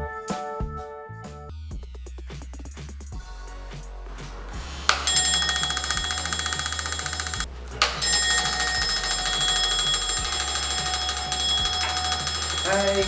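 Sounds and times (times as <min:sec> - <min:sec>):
alarm bell ringing rapidly: 0:04.9 - 0:13.0.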